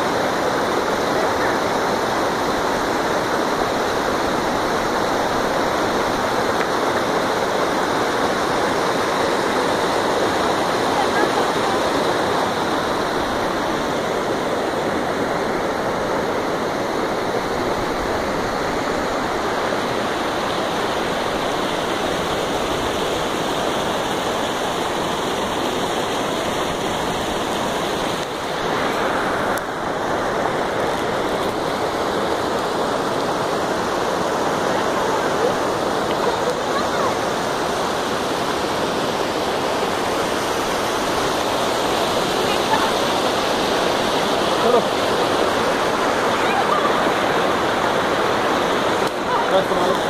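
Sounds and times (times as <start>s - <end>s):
stream rushing over boulders: 0.0s - 50.0s.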